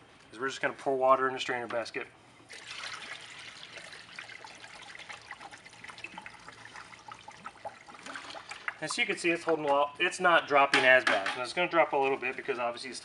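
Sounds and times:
water pouring from a bucket: 2.5s - 9.0s.

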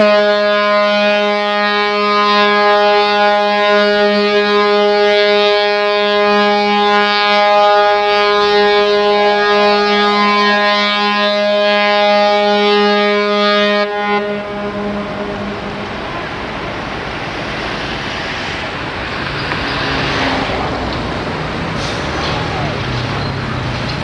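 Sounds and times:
ship's horn blast: 0.0s - 17.2s.

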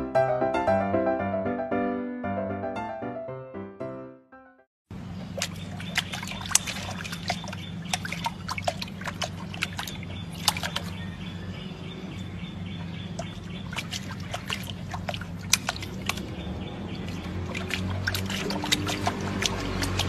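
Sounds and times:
water splashing: 5.0s - 20.0s.

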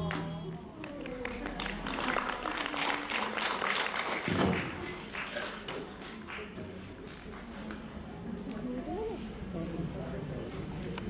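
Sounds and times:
audience applauding: 0.1s - 6.7s.

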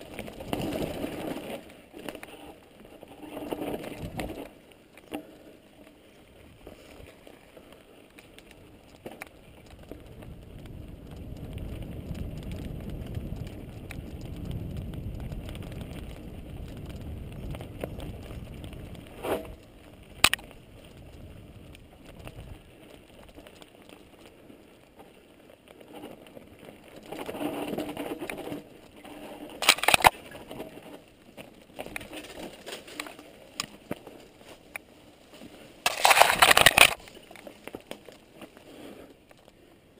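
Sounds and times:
bike clattering over bumps: 0.0s - 5.5s
bicycle tyre rumble: 0.0s - 39.9s
wind: 0.0s - 39.9s.

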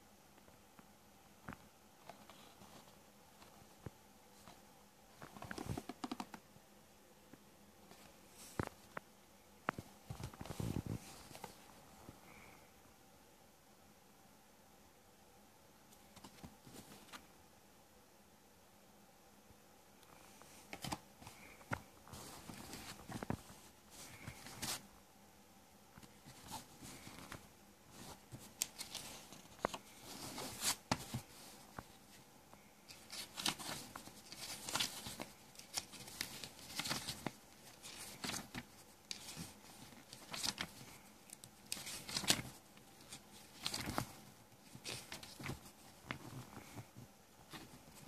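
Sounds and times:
paper pages turning: 5.2s - 6.4s, 20.7s - 24.8s, 26.0s - 31.9s, 32.9s - 48.0s.

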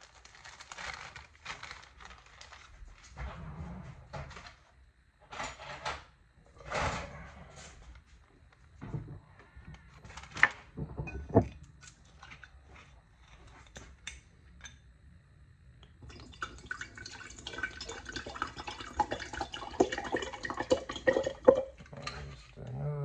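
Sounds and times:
water pouring into jar: 16.0s - 21.9s.

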